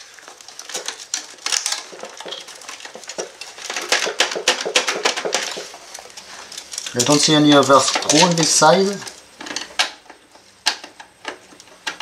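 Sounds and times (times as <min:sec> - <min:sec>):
printer parts rustling and clicking: 0:00.0 - 0:12.0.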